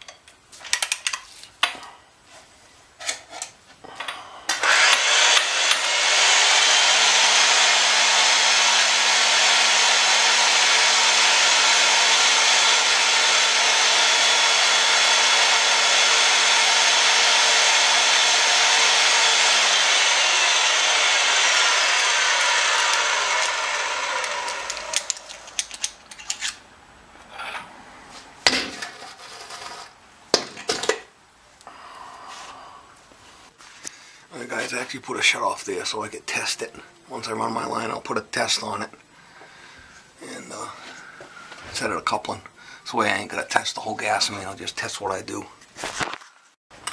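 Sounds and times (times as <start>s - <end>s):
pipe threading machine motor hum: 3.8s - 26.4s.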